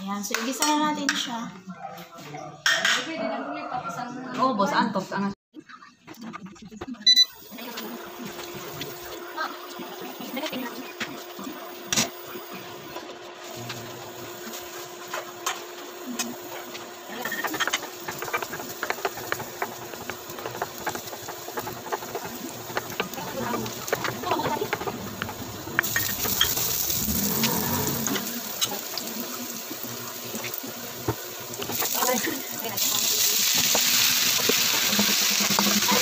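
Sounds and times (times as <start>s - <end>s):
hot oil sizzling in a pan: 13.4s - 36.0s.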